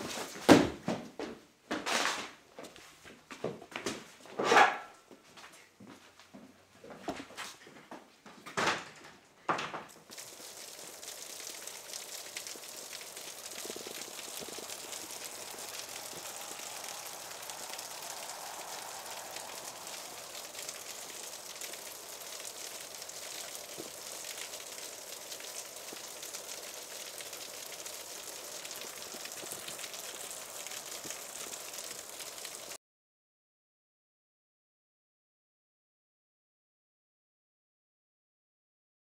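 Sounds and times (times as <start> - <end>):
light rain pattering: 9.1 - 32.8.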